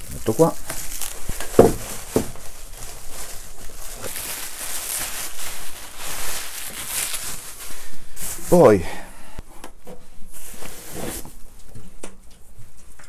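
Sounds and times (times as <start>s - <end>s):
plastic packaging crinkling: 0.0s - 8.8s.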